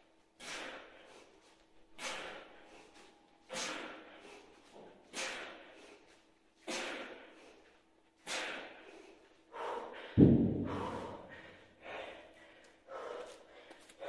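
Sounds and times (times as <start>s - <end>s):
man gasping breaths: 0.1s - 14.0s
kettlebell thud on concrete: 10.2s - 11.2s.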